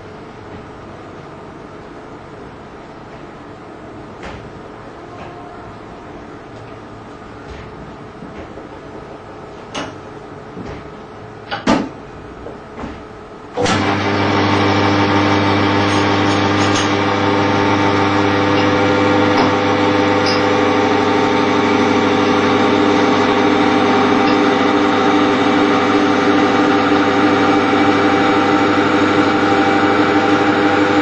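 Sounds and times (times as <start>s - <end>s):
electric motor humming: 13.6s - 31.0s
test shaft whine: 13.6s - 31.0s.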